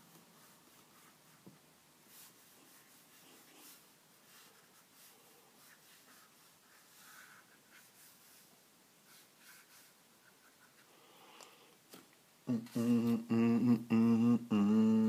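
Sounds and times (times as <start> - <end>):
brush pen on paper: 0.1 - 11.3.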